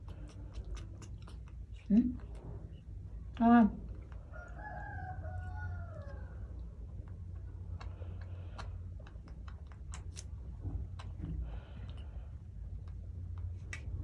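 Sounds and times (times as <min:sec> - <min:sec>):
sharp clicks and ticks: 0:07.0 - 0:11.2.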